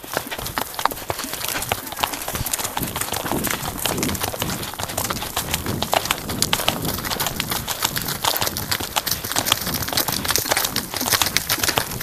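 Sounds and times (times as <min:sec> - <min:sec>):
horses galloping: 0:00.0 - 0:12.0.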